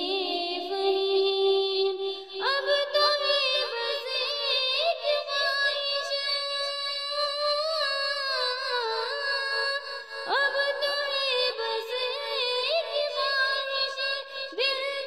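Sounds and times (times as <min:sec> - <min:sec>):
high voice singing: 0:00.0 - 0:15.0.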